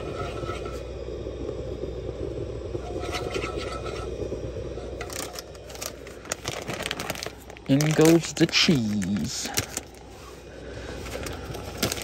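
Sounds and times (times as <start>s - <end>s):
spatula scraping skillet: 0.0s - 0.8s, 2.8s - 4.1s
plastic bag crinkling: 5.0s - 10.2s, 10.9s - 12.0s.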